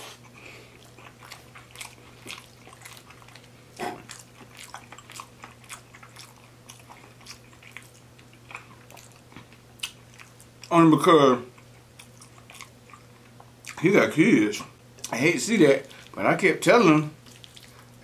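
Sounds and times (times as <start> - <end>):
person chewing with wet smacks: 0.0 - 10.7, 11.5 - 13.8, 17.2 - 18.0.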